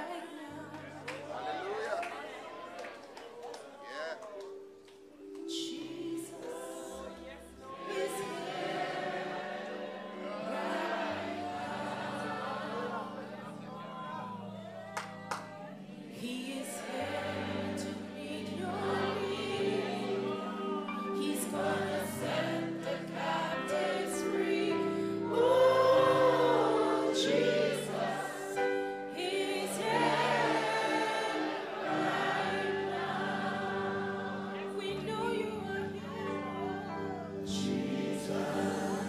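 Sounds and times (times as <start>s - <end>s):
woman singing slow melody: 5.4s - 7.4s, 34.6s - 37.8s
voices singing along: 5.4s - 39.0s.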